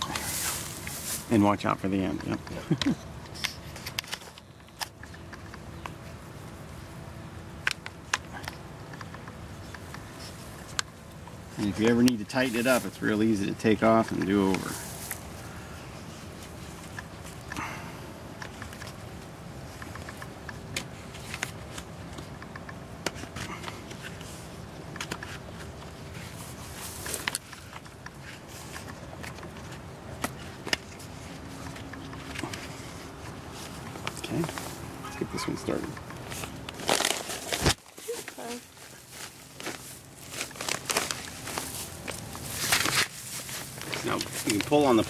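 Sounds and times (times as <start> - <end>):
plastic film crinkling: 36.2 - 45.0.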